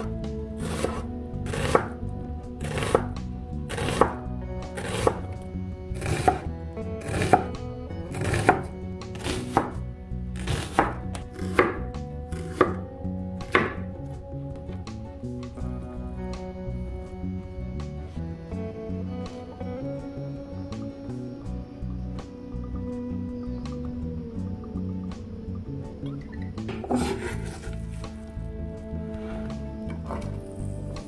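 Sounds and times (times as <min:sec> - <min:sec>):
knife chopping on cutting board: 0:00.6 - 0:01.9, 0:02.6 - 0:03.1, 0:03.7 - 0:04.2, 0:04.8 - 0:05.2, 0:06.0 - 0:06.4, 0:07.0 - 0:07.5, 0:08.1 - 0:09.8, 0:10.4 - 0:12.8, 0:13.4 - 0:13.8.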